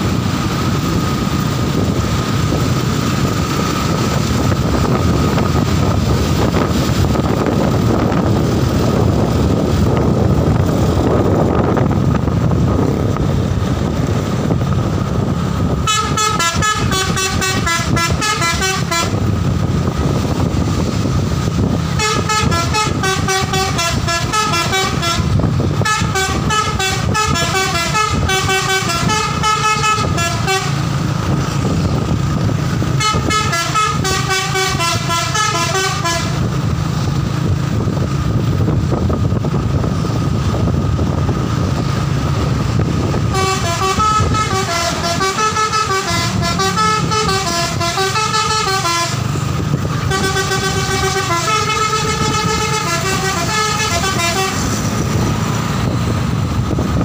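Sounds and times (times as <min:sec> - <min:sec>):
engine and road rumble: 0:00.0 - 0:57.0
musical bus horn tune: 0:15.7 - 0:19.5, 0:21.9 - 0:31.1, 0:32.8 - 0:36.6, 0:43.0 - 0:55.1.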